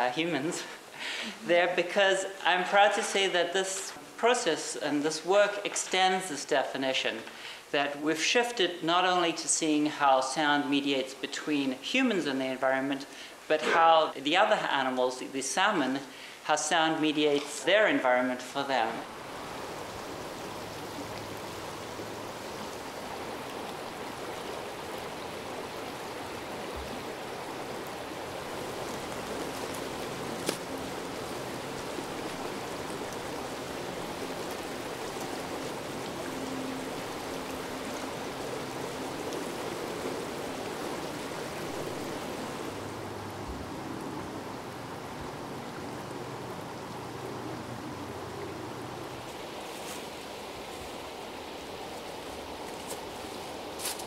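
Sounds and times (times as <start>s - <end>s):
creek water over stones: 0.0s - 54.0s.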